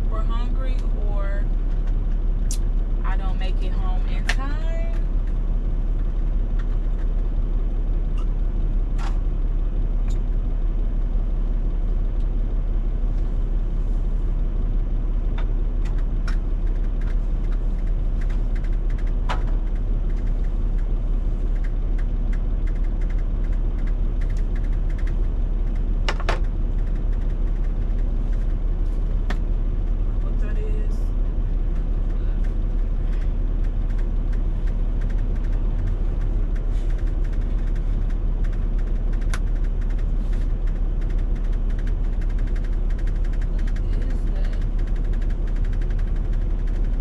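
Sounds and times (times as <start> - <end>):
diesel engine idling: 0.0 - 47.0
small clicks and knocks: 21.5 - 28.4.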